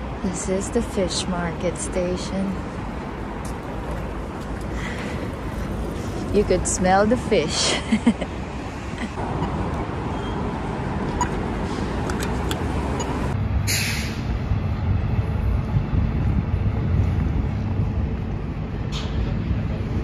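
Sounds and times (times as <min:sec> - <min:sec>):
road traffic rumbling: 0:00.0 - 0:20.0
short loud hiss: 0:13.7 - 0:14.2.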